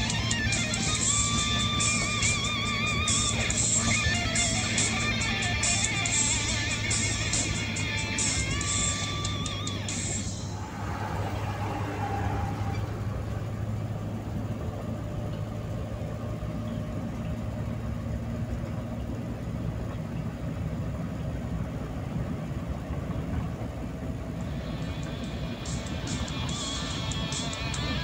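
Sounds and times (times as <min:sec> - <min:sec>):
low engine hum: 0:00.0 - 0:28.0.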